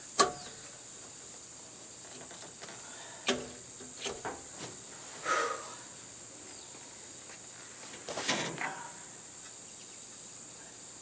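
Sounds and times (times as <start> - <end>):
high-pitched hiss: 0.0 - 11.0
scraping clunk: 8.0 - 8.8.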